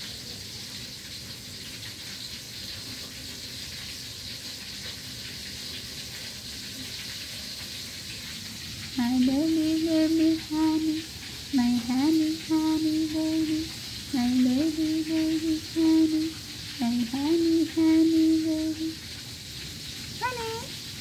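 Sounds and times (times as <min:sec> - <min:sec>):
steady hiss: 0:00.0 - 0:21.0
person humming a tune: 0:09.0 - 0:11.0, 0:11.6 - 0:19.0, 0:20.2 - 0:20.7.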